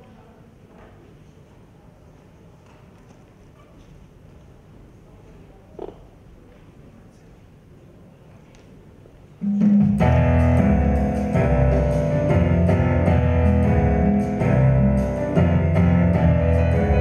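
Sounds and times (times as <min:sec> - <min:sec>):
instrumental backing track: 0:09.4 - 0:17.0.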